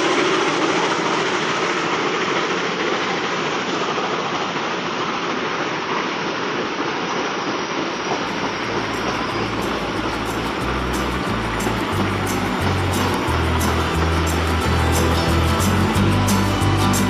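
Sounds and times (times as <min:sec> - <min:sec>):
freight train wheels rumbling: 0:00.0 - 0:17.0.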